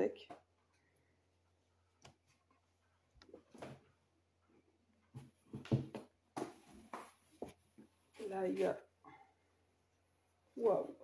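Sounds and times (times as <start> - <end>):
clothes and packaging rustling: 5.0 - 8.9.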